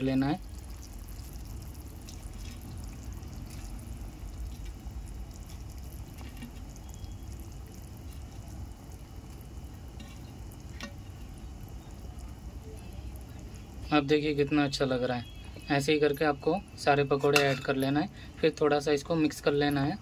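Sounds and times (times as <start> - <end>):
balls plopping into gravy: 0.4 - 12.6.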